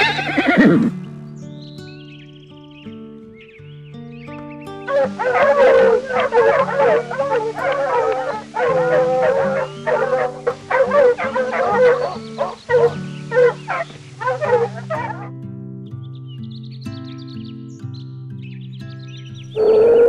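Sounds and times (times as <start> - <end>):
fox high-pitched cries: 0.0 - 0.9, 4.9 - 15.3, 19.6 - 20.0
soft piano music: 4.8 - 15.4.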